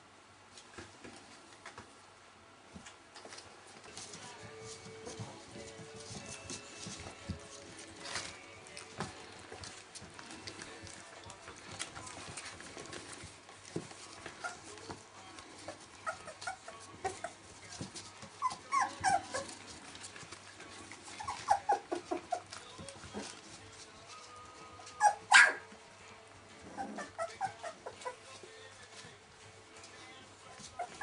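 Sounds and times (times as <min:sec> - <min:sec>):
puppies giving high calls: 0:15.5 - 0:17.5, 0:18.3 - 0:20.0, 0:20.9 - 0:23.4, 0:24.8 - 0:25.7, 0:26.6 - 0:28.4, 0:30.6 - 0:31.0.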